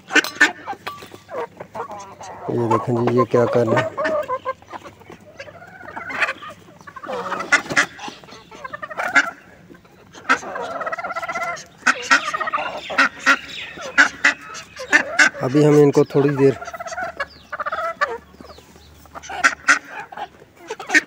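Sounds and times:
poultry flock calling: 0:00.0 - 0:21.0
rapid chattering bird call: 0:11.0 - 0:20.0.

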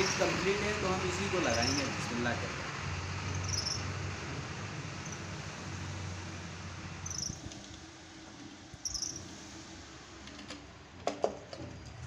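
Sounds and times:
metal part squeaking: 0:01.4 - 0:02.0, 0:03.3 - 0:03.9, 0:08.8 - 0:09.3.

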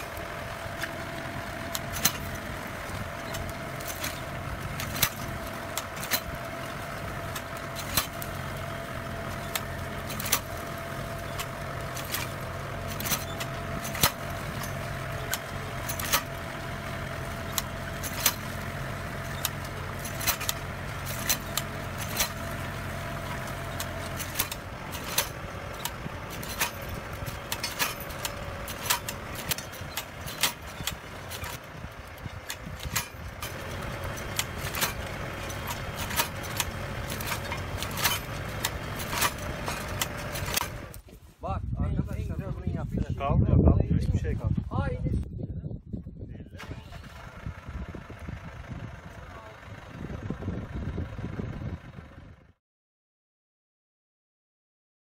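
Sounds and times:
blade hoe clicking and knocking: 0:00.0 - 0:41.2
tractor engine running: 0:00.0 - 0:52.6.

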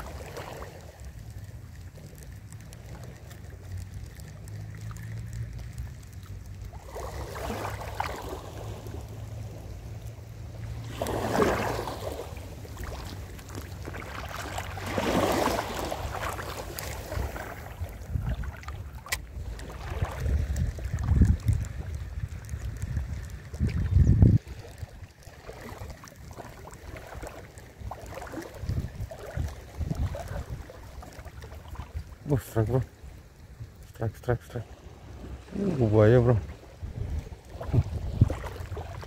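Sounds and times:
small waves washing over rocks: 0:00.0 - 0:39.0
wind rumbling on microphone: 0:00.0 - 0:39.0.

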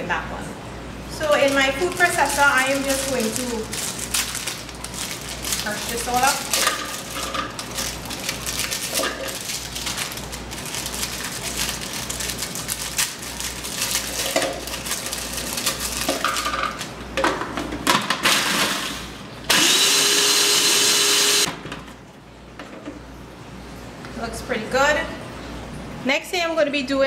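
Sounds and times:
plastic packet crinkling: 0:01.2 - 0:16.9
food processor motor running: 0:19.5 - 0:21.5.

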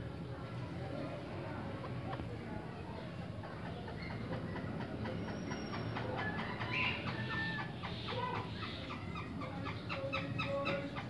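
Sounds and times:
partridges chirping and clucking: 0:03.0 - 0:11.0.

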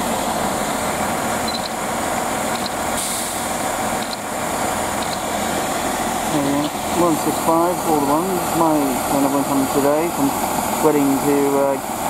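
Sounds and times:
diesel train engine idling: 0:00.0 - 0:12.0
short hiss: 0:03.0 - 0:03.5.

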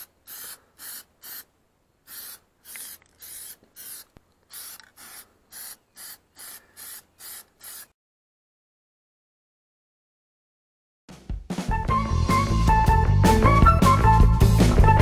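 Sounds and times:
aerosol spray hisses: 0:00.0 - 0:07.9.

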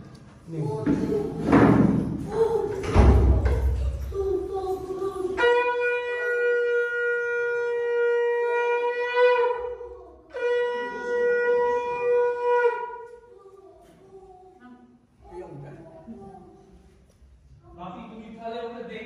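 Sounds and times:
conch shell blown: 0:05.4 - 0:13.3.

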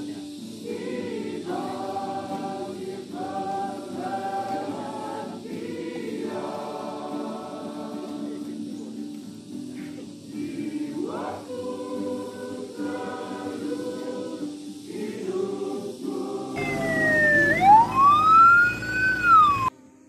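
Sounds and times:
choir singing: 0:00.0 - 0:09.0, 0:10.0 - 0:18.2
ambulance siren wailing: 0:16.6 - 0:19.7.

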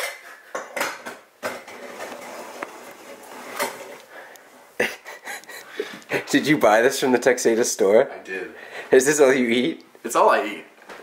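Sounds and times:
plastic wrap rustling: 0:01.7 - 0:04.1.

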